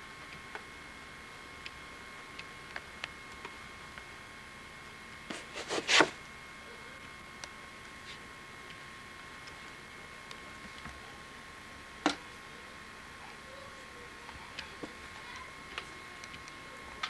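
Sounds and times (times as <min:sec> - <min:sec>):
scratchy rustles: 0:05.3 - 0:06.2.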